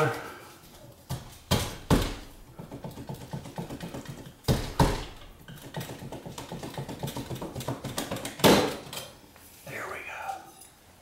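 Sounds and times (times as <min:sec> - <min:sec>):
sharp knocks: 0:01.1 - 0:08.8
tool prying wooden trim: 0:01.1 - 0:09.0.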